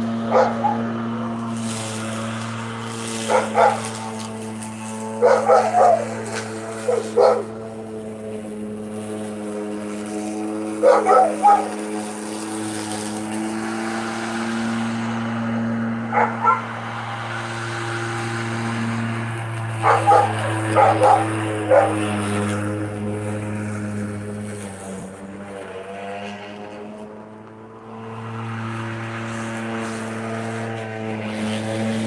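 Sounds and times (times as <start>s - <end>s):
electric lawn mower humming: 0.0s - 32.0s
dog barking: 0.3s - 0.9s, 3.3s - 3.9s, 5.2s - 6.1s, 6.8s - 7.5s, 10.8s - 11.7s, 16.1s - 16.7s, 19.8s - 22.0s.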